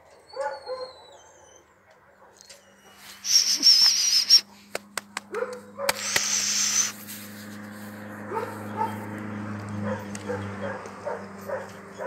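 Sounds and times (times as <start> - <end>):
dog barking: 0.4 - 0.9, 5.2 - 6.1, 8.3 - 9.1, 9.8 - 12.0
rough hissing noise: 3.0 - 4.4, 5.9 - 8.1
sharp clicks: 4.7 - 6.5.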